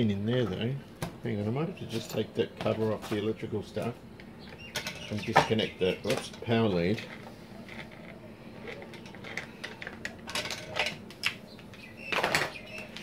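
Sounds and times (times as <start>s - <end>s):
faint steady hum: 0.0s - 13.0s
plastic parts clicking and rattling: 7.0s - 13.0s.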